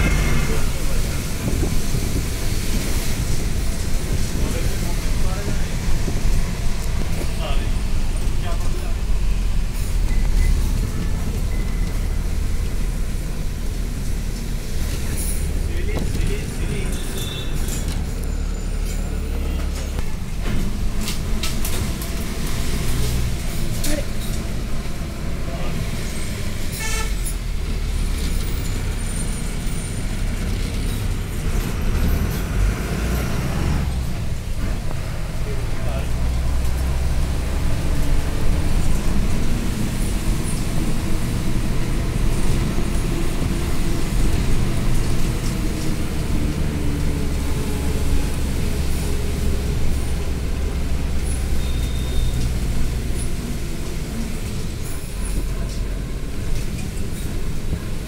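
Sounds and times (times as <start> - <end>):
wind buffeting microphone: 0.0 - 8.4
bus engine and road noise: 0.0 - 58.0.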